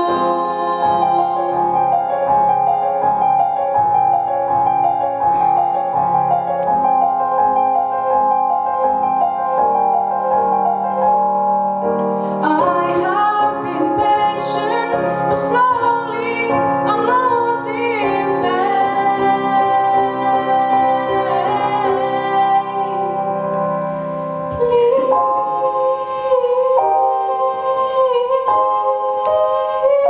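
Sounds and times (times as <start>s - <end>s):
woman singing: 0.0s - 2.2s, 12.4s - 23.2s, 24.5s - 30.0s
digital piano accompaniment: 0.0s - 30.0s.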